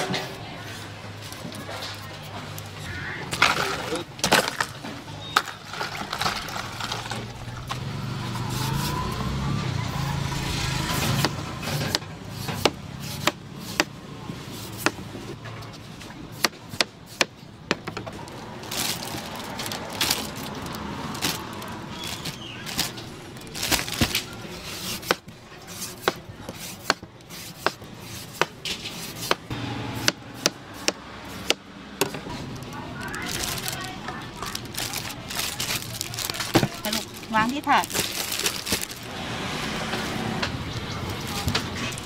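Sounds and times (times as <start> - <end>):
plastic bag rustling: 5.4 - 7.6, 18.2 - 25.0, 32.3 - 39.2.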